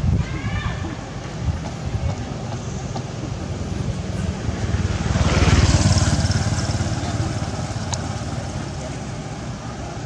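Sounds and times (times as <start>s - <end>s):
vehicle engine passing by: 3.3s - 10.0s.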